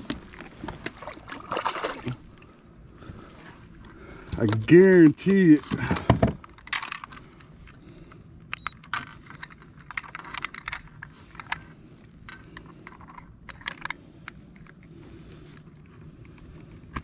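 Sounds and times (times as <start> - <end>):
low steady background noise: 0.0 - 17.0.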